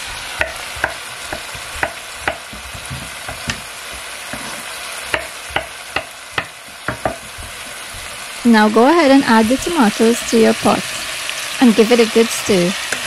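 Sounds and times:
food frying in a pot: 0.0 - 13.0
knife chopping on wooden board: 0.4 - 8.2.

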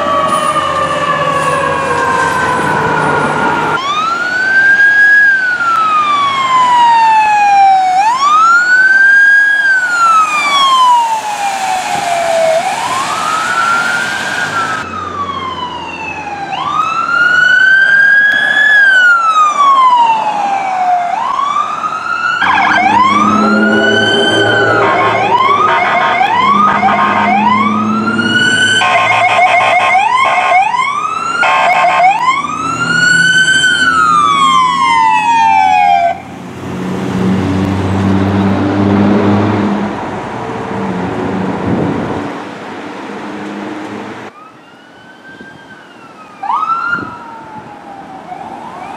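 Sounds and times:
fire engine sirens wailing: 0.0 - 42.3, 43.8 - 48.9
horn blasts: 22.4 - 30.0.

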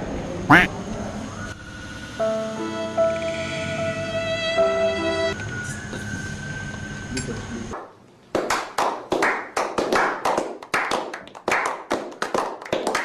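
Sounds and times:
background music: 2.1 - 5.4
people clapping hands: 7.8 - 13.0.

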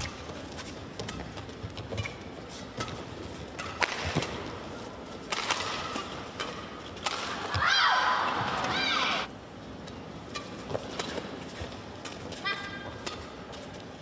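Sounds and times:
arena background noise: 0.0 - 14.0
rackets striking shuttlecock: 2.8 - 4.5, 5.2 - 7.6.

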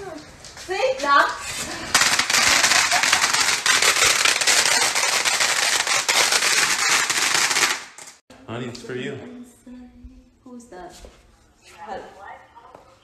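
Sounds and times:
fireworks crackling pops: 0.0 - 8.2.

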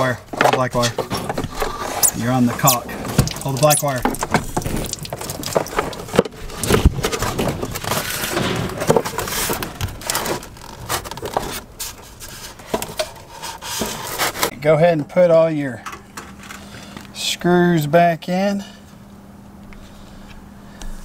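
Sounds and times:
scraping and rubbing: 1.0 - 14.5.

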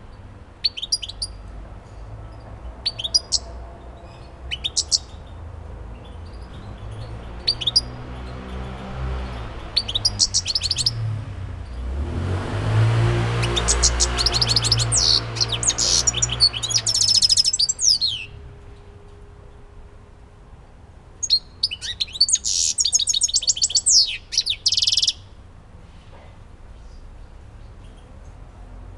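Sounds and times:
goldfinch singing: 0.6 - 1.4, 2.8 - 11.0, 13.4 - 18.4, 21.2 - 25.3.

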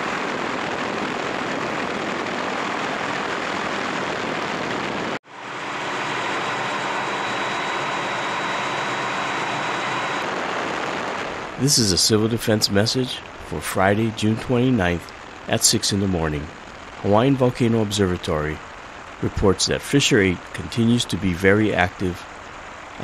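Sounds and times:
helicopter rotor noise: 1.7 - 10.4
faint high whine: 5.1 - 23.0.

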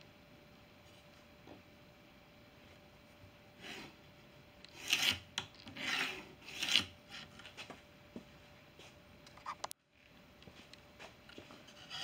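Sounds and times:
pencil drawing on plywood: 4.7 - 7.3.

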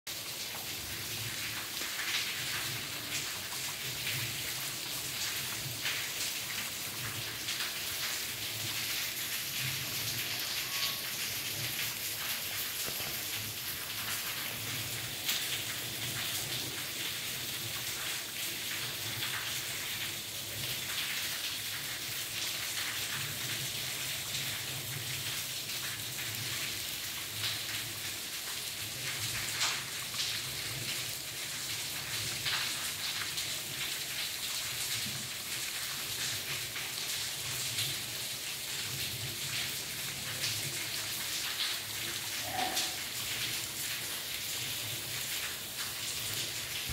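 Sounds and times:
sharp raindrops landing close: 0.1 - 46.9
steady rain falling: 0.1 - 46.9
brief single tone: 10.4 - 11.2.

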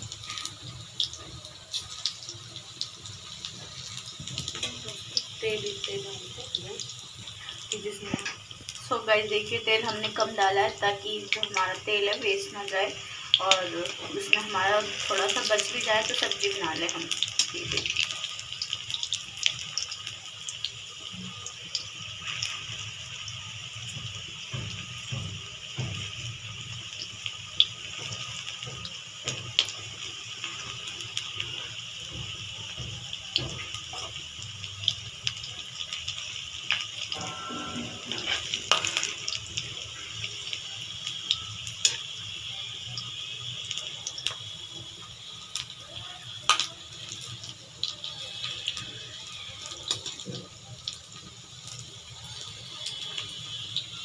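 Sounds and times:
deep-frying sizzle with pops: 0.0 - 54.0
metal spoon scraping pan: 37.2 - 39.2.

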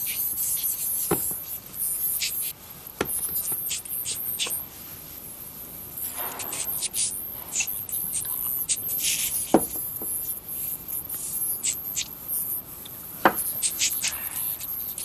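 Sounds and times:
scrambled scratchy hissing bursts: 0.0 - 2.6, 3.2 - 4.8, 6.0 - 15.0.

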